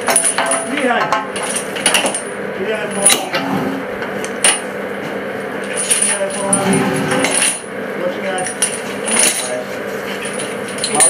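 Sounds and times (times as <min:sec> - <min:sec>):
steady low hum: 0:00.0 - 0:11.0
metallic clinks and scrapes: 0:05.6 - 0:07.7, 0:08.3 - 0:11.0.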